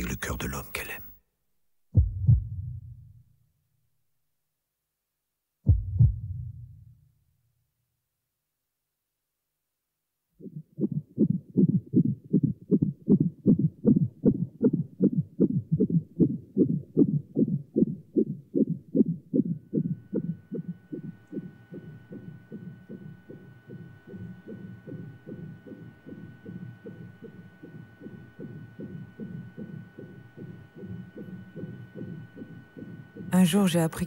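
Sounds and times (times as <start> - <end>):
faint steady hum: 0.0 - 1.2, 10.4 - 34.0
fetal heartbeat on doppler monitor: 2.0 - 3.2, 5.7 - 7.0, 10.4 - 34.0.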